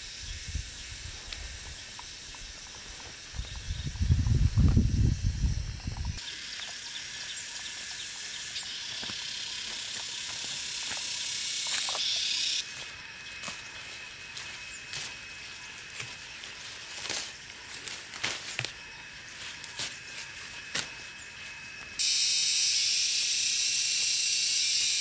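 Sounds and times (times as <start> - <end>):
insect chorus: 0.0 - 25.0
leaves being plucked: 15.8 - 21.5.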